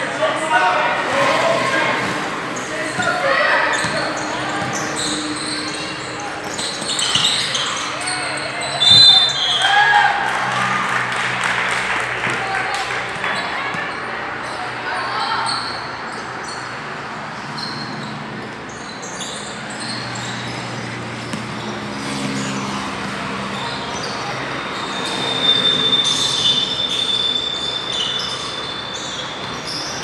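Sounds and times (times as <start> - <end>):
vehicle rumble passing: 10.0 - 13.6
thin high squeal: 24.4 - 29.9.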